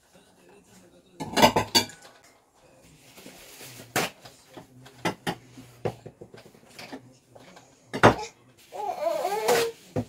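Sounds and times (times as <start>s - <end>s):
items knocking and clinking: 1.2s - 2.2s, 3.9s - 8.3s
kitchenware clattering: 1.2s - 2.2s, 4.0s - 8.4s
paper rustling: 2.9s - 4.9s.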